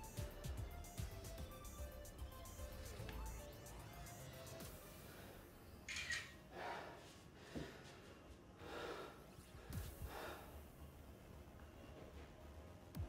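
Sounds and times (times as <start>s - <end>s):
man breathing forcefully: 6.5s - 10.7s.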